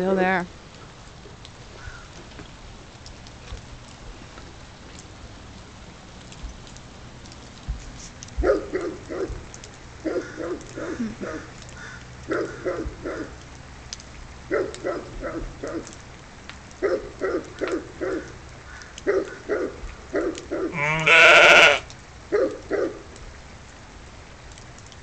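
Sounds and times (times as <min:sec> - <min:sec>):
dog barking: 0:08.4 - 0:09.4, 0:10.0 - 0:11.5, 0:12.3 - 0:13.4, 0:14.5 - 0:16.0, 0:16.8 - 0:18.4, 0:19.0 - 0:20.9, 0:22.3 - 0:23.1
sheep bleating: 0:20.7 - 0:21.9.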